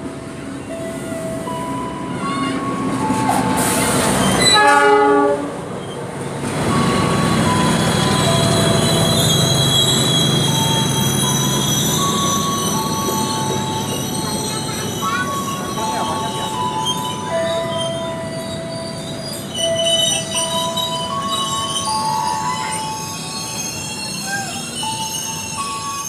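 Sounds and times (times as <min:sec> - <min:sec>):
train rumble: 0:00.0 - 0:26.0
steel wheels squealing: 0:02.2 - 0:04.8, 0:06.7 - 0:26.0
train horn blast: 0:04.4 - 0:05.6.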